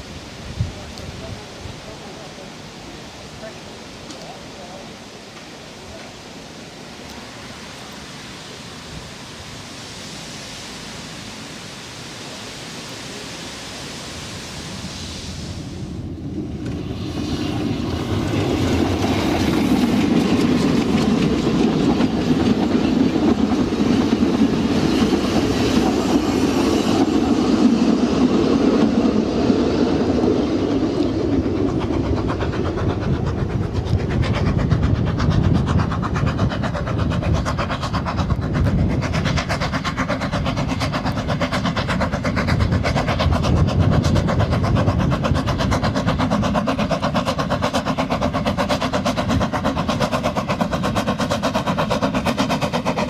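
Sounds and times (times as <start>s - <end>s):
goods train passing close by: 0.0s - 53.0s.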